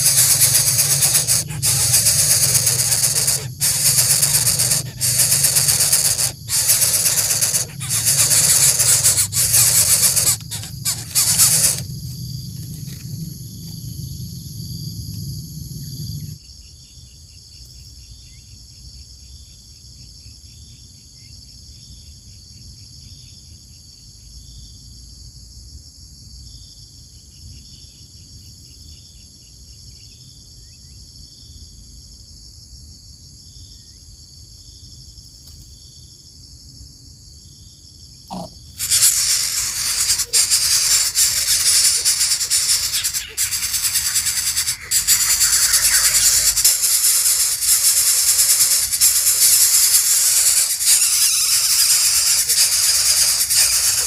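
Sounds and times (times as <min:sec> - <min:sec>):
sharp clicks: 0:00.0 - 0:11.9, 0:38.3 - 0:54.0
loud hissing rustling noise: 0:00.0 - 0:12.1, 0:38.3 - 0:54.0
insects chirping: 0:00.0 - 0:17.6, 0:38.3 - 0:54.0.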